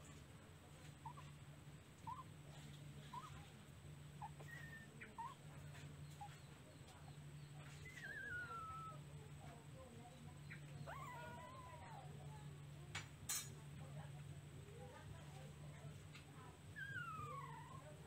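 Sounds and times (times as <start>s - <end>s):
faint low hum: 0.0s - 18.0s
puppies squeaking: 0.9s - 1.4s, 2.0s - 9.2s, 10.4s - 12.1s, 16.7s - 18.0s
puppy whining: 0.9s - 1.4s, 2.0s - 3.6s, 4.2s - 6.6s, 7.5s - 9.2s, 10.6s - 12.1s, 16.7s - 18.0s.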